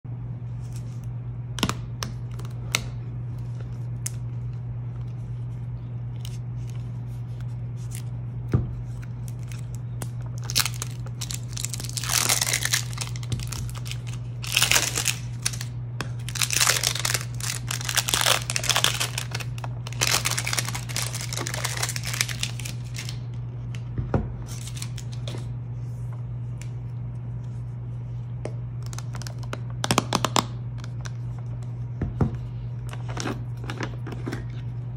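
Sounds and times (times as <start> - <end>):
steady low hum: 0.0 - 34.9
plastic shrink wrap crinkling: 8.9 - 23.4, 24.5 - 25.3.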